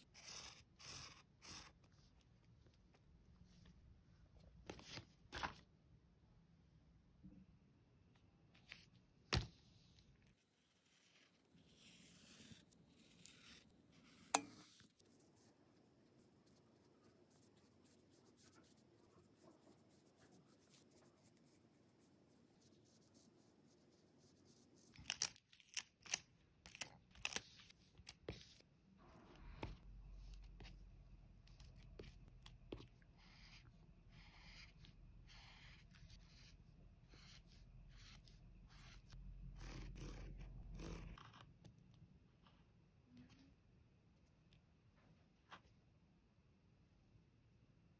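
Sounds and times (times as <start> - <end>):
marker stroking on paper: 0.0 - 2.3, 10.5 - 25.7, 27.2 - 28.6, 29.4 - 41.4
sticker peeled from backing: 24.9 - 28.4.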